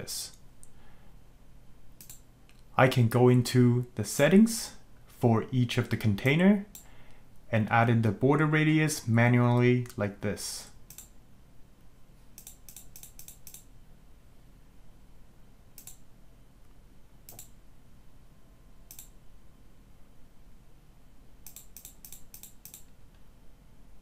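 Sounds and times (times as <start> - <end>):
faint low hum: 0.0 - 24.0
computer mouse clicks: 2.0 - 2.6, 10.9 - 11.1, 12.3 - 13.7, 15.8 - 16.0, 17.3 - 17.6, 18.9 - 19.1, 21.4 - 23.0.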